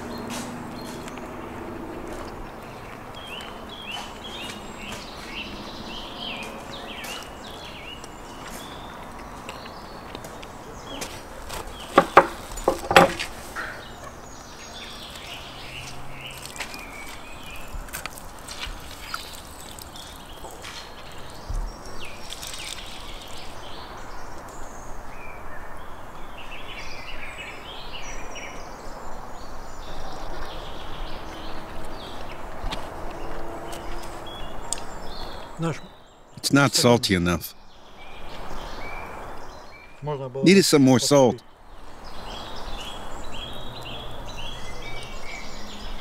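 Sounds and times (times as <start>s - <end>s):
birds chirping: 0.0s - 46.0s
steady outdoor hiss: 0.0s - 46.0s
sharp loud knocks: 11.9s - 13.8s.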